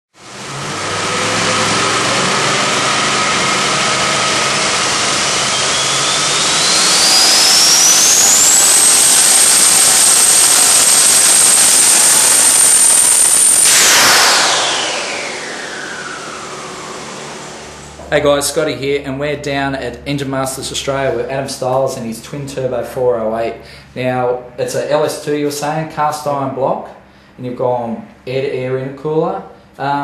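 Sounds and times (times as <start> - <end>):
engine running hard: 0.2 - 22.8
turbocharger whine: 0.2 - 22.8.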